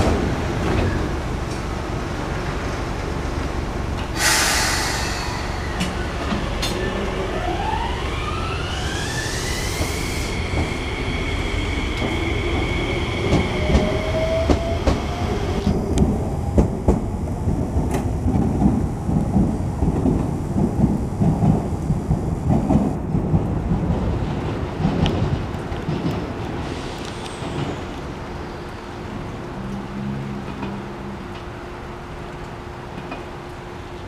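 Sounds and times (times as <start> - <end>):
electric train motor whine: 4.6 - 15.7.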